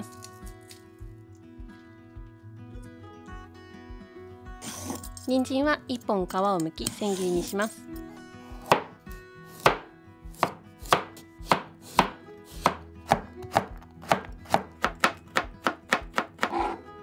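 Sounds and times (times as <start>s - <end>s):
knife chopping carrot on a board: 8.6s - 8.9s, 9.5s - 16.8s.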